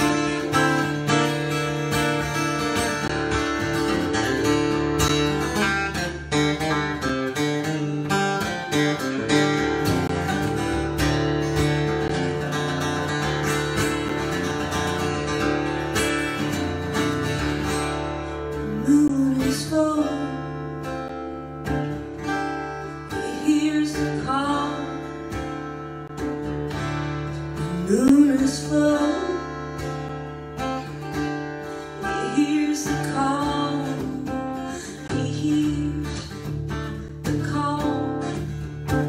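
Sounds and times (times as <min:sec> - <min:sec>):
acoustic guitar: 0:00.0 - 0:39.0
woman singing: 0:18.5 - 0:21.0, 0:23.0 - 0:25.8, 0:27.5 - 0:30.2, 0:32.0 - 0:39.0.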